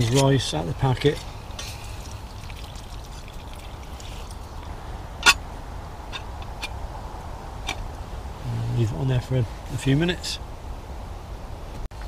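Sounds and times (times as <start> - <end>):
water pouring into tin: 1.5 - 4.6.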